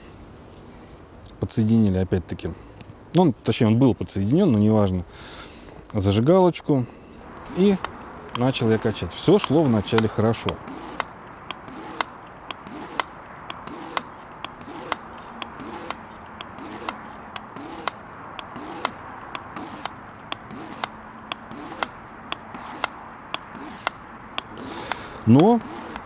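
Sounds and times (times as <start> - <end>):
hand pump clicks with metallic ring: 7.6 - 26.0.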